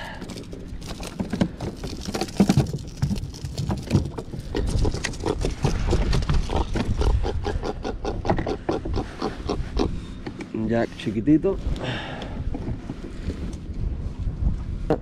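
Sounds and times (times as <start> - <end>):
fish grunting: 4.2 - 10.2.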